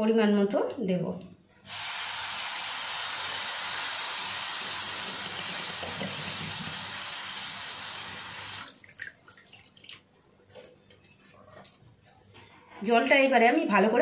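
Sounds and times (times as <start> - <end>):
water hissing in hot pan: 1.7 - 8.7
water dripping: 8.6 - 10.1.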